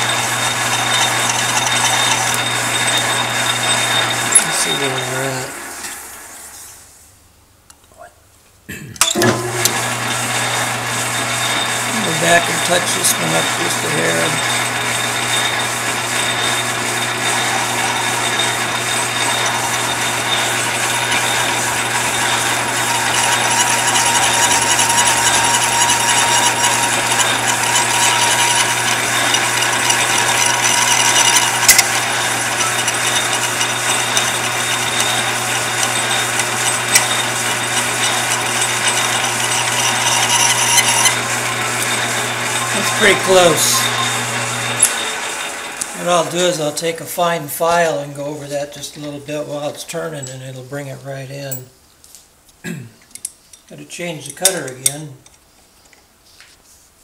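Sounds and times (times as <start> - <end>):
lathe motor hum: 0.0 - 6.5, 9.2 - 46.9
hissing cutting noise: 10.8 - 46.6.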